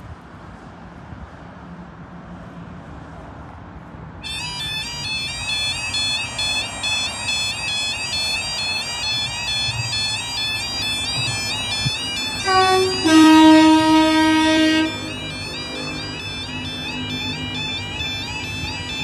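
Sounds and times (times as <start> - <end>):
two-note train horn: 4.2 - 19.0
warbling crossing alarm: 4.2 - 19.0.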